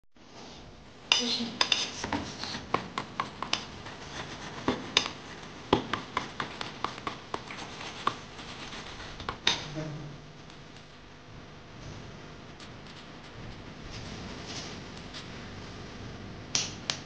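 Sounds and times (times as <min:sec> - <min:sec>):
fork beating eggs in metal bowl: 0:01.1 - 0:09.7.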